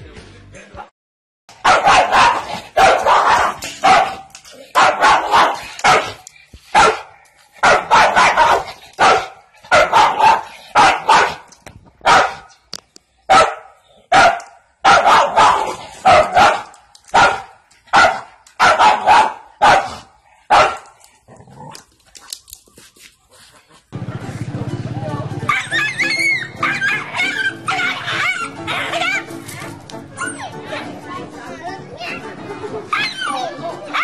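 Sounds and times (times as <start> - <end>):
dog barking: 1.6 - 12.5, 13.3 - 21.0.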